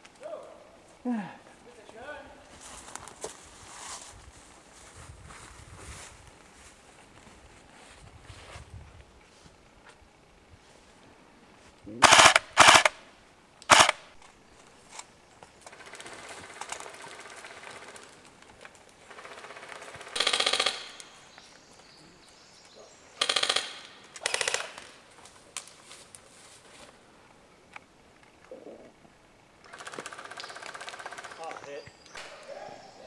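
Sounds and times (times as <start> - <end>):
airsoft rifle full-auto bursts: 12.0 - 13.0, 13.7 - 14.1, 19.0 - 21.1, 23.2 - 25.0, 29.6 - 31.6.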